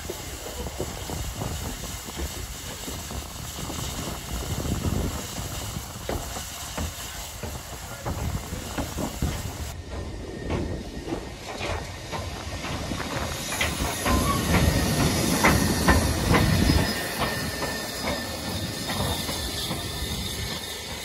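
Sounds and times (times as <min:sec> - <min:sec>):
steam hissing: 0:00.0 - 0:21.0
knocks from locomotive wheels: 0:06.0 - 0:20.6.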